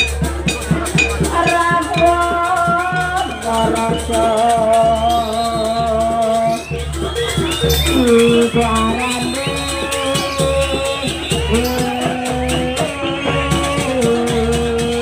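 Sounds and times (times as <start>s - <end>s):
drums and rattling percussion: 0.0s - 15.0s
wavering melody of held notes: 0.0s - 15.0s.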